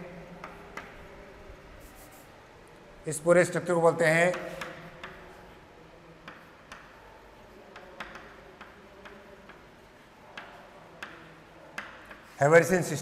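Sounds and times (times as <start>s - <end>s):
chalk tapping on chalkboard: 0.4s - 1.0s, 4.3s - 5.4s, 6.2s - 12.4s.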